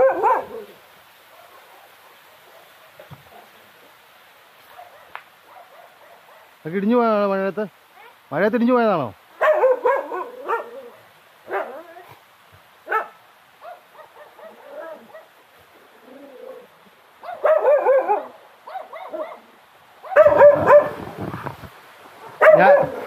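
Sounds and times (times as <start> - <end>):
dog barking: 0.0 - 3.6, 4.6 - 6.6, 8.0 - 8.2, 9.4 - 12.1, 12.8 - 15.4, 17.2 - 21.1, 22.2 - 23.0.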